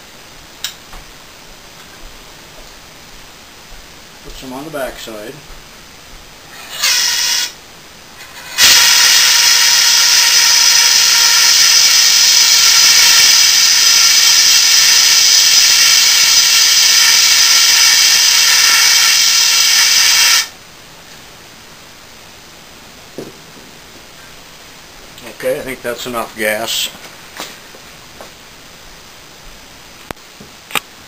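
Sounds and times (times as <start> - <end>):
fire extinguisher hissing: 6.5 - 7.6, 8.2 - 20.6.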